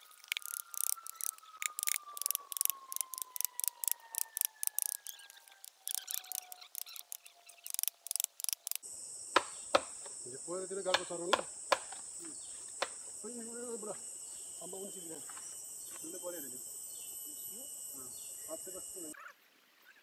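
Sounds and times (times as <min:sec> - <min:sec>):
high insect shrill: 0:00.0 - 0:19.2.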